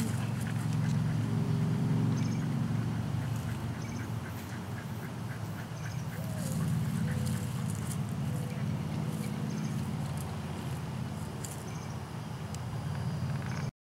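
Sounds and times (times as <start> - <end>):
low engine-like hum: 0.0 - 13.7
faint ticks and scuffs: 3.2 - 13.6.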